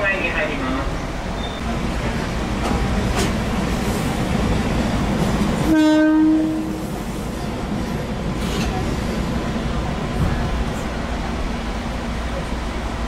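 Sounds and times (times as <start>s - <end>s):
train rumbling: 0.0s - 13.0s
train horn blast: 5.6s - 6.9s.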